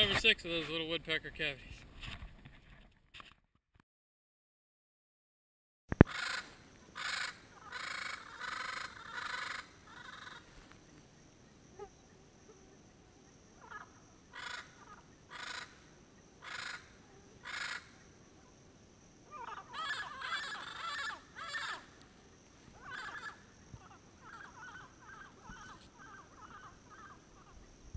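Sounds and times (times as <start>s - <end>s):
parrots calling: 6.0s - 10.5s, 13.6s - 18.1s, 19.2s - 22.0s, 22.7s - 27.6s.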